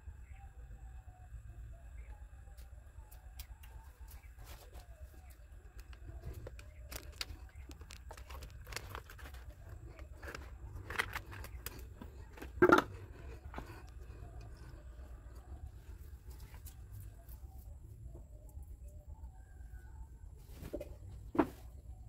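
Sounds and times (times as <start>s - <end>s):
low steady hum: 0.0s - 22.0s
handling clicks and rustles: 4.7s - 14.8s.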